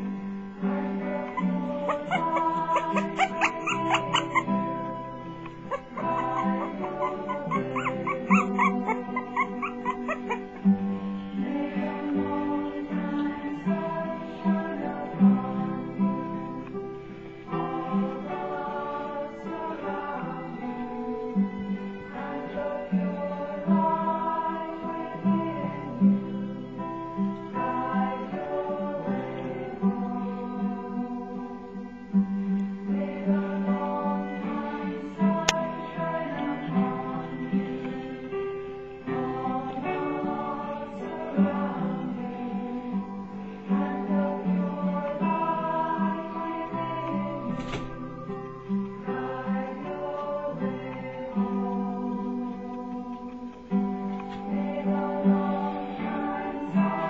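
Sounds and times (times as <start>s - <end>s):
background music with held tones: 0.0s - 57.0s
puppies squeaking and whimpering: 1.3s - 4.5s, 5.4s - 10.6s.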